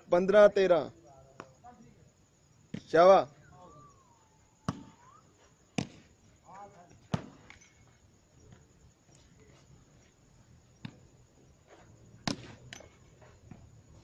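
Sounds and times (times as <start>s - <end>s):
volleyball struck by hands: 4.7s - 4.9s, 5.8s - 6.0s.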